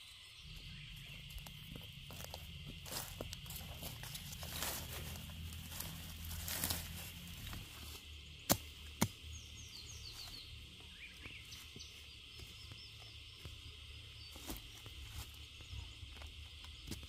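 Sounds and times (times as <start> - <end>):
rustling of dry leaves: 0.0 - 17.0
machete chopping into ground: 8.5 - 9.2.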